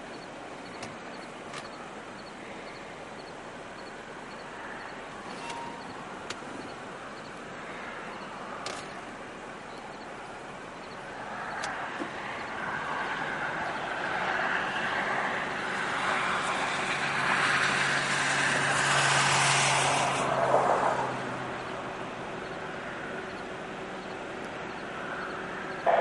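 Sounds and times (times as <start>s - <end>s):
vehicle passing: 10.4s - 26.0s.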